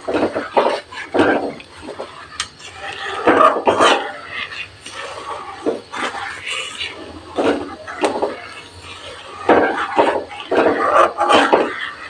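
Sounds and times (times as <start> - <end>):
background voice: 0.0 - 12.0
spoon stirring and scraping in metal pot: 0.0 - 12.0.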